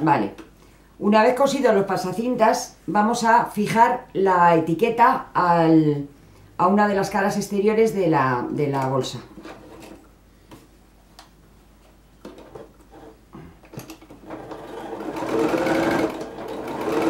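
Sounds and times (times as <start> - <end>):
sewing machine motor whining: 14.2 - 17.0.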